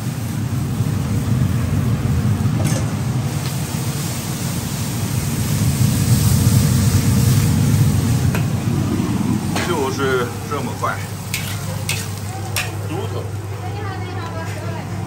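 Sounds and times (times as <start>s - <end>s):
food sizzling in wok: 0.0s - 13.6s
stove flame roar: 0.0s - 15.0s
metal ladle clinking on wok: 11.3s - 12.8s.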